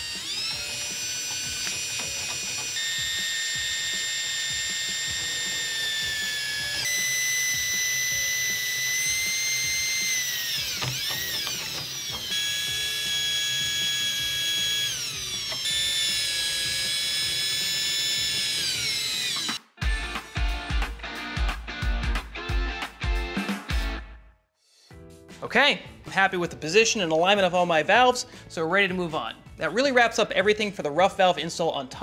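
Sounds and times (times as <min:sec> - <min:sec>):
cordless drill motor whining: 0:00.0 - 0:19.6.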